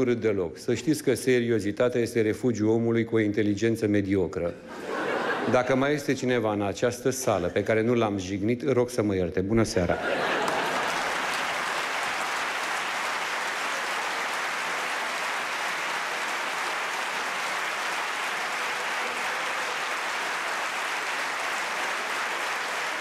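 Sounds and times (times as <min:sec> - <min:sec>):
audience applauding: 0:10.0 - 0:23.0.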